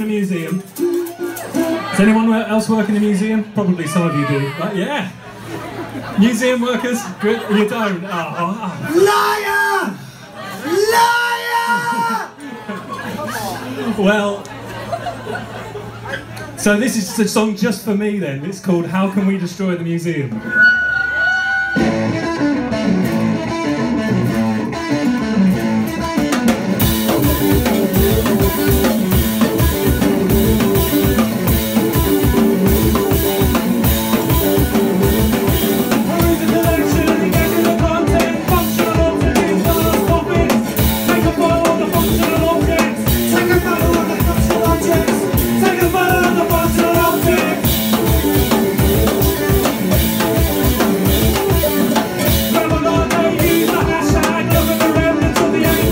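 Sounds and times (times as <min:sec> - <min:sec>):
drum kit beat: 0:00.0 - 0:02.0, 0:21.8 - 0:55.9
punk band playing: 0:00.0 - 0:04.6, 0:05.2 - 0:18.0, 0:20.3 - 0:55.9
electric guitar: 0:20.4 - 0:55.9.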